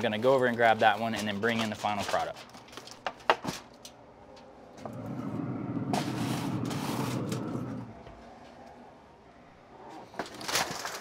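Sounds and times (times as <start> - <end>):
low rumble: 3.9 - 9.5.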